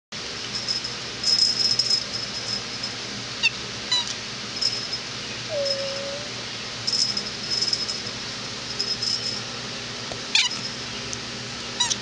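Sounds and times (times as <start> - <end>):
kitten mewing: 5.5 - 6.4.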